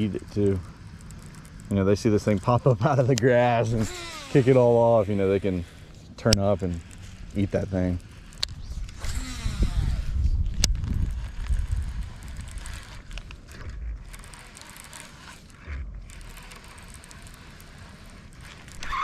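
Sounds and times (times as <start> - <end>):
fishing reel cranking: 0.0 - 19.0
wind rumbling on microphone: 7.1 - 14.2.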